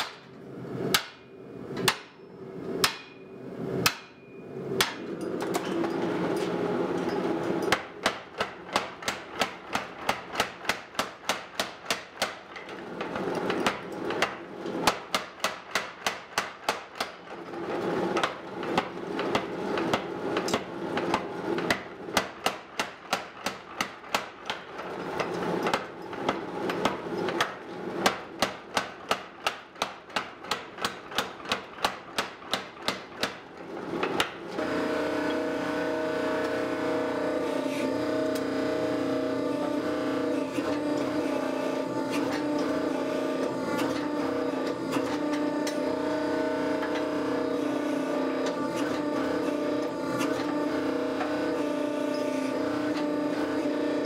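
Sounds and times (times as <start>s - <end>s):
hammer striking hot steel: 0.9s - 2.2s, 2.8s - 5.5s, 7.6s - 12.7s, 13.5s - 17.2s, 18.2s - 24.7s, 25.7s - 33.4s.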